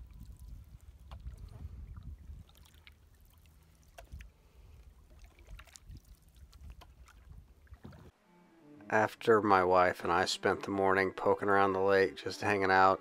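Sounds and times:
paddle splashing and dripping: 0:00.0 - 0:08.1.

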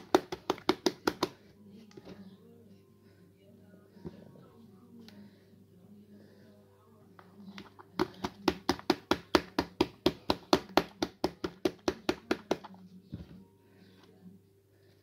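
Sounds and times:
sponge tapping plastic tub: 0:00.0 - 0:01.4, 0:07.6 - 0:13.2.

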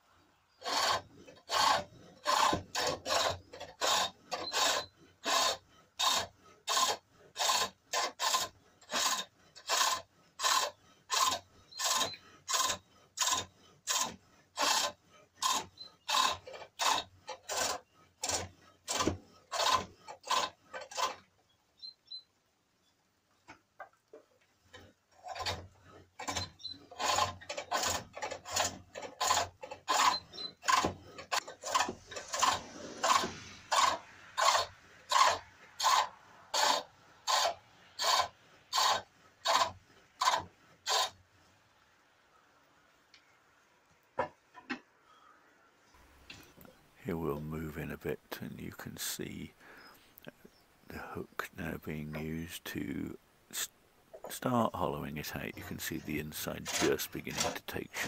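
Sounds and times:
chisel cutting wood on lathe: 0:00.6 - 0:21.3, 0:24.7 - 0:41.2, 0:50.9 - 0:58.0.

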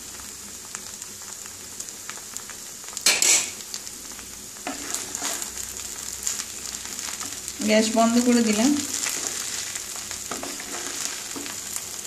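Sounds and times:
ghee sizzling: 0:00.0 - 0:12.0
wooden spatula stirring rice: 0:04.6 - 0:07.5, 0:08.8 - 0:12.0.

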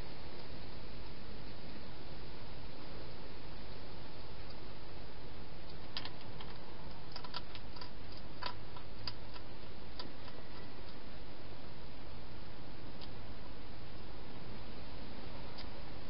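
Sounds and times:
steady hiss: 0:00.0 - 0:16.0
hedgehog eating clicks: 0:05.6 - 0:11.0.

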